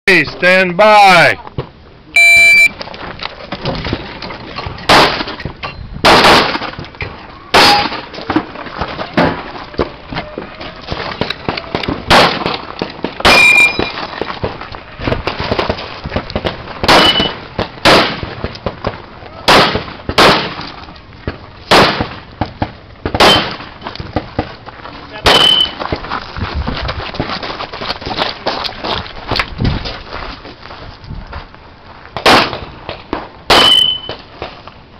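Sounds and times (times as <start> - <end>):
shot timer beep: 2.2 - 2.7
pistol shots: 6.0 - 6.6, 12.1 - 12.6, 16.8 - 18.3, 19.5 - 20.6, 21.7 - 22.2, 23.1 - 23.6, 33.5 - 34.0.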